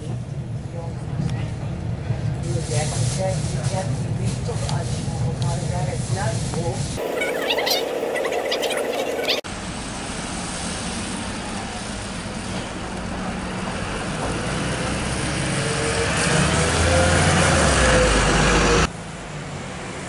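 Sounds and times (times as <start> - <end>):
bus diesel engine rumbling: 7.0 - 20.0
engine whine: 7.0 - 20.0.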